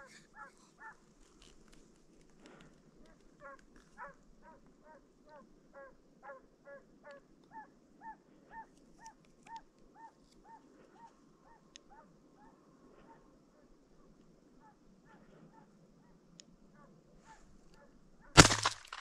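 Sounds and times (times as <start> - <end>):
hound baying: 0.0 - 1.1, 3.1 - 13.2.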